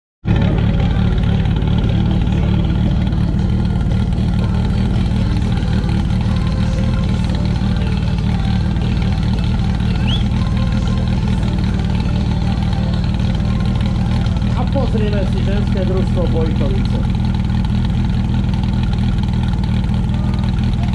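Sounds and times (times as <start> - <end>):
fire pump engine running: 0.2 - 20.9
high rising whistle: 9.9 - 10.5.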